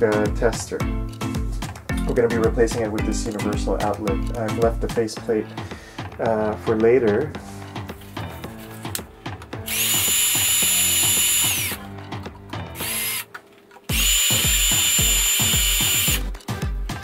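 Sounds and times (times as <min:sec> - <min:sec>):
background music with a beat: 0:00.0 - 0:17.0
cordless drill whining: 0:09.6 - 0:11.8, 0:12.7 - 0:13.3, 0:13.9 - 0:16.4.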